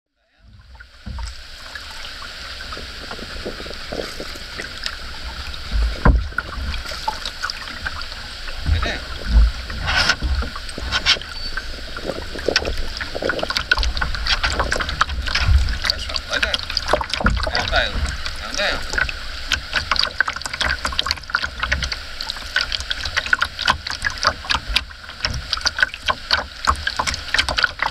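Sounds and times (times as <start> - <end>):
paddle strokes splashing: 0.4 - 27.9
wind rumbling on microphone: 0.4 - 27.9
knocks against canoe hull: 0.5 - 1.4, 5.6 - 7.2, 8.6 - 11.3, 12.2 - 22.0.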